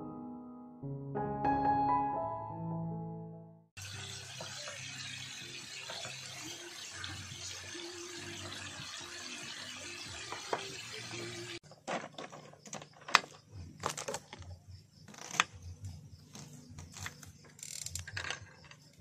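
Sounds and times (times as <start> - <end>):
meat sizzling in a frying pan: 3.8 - 11.6.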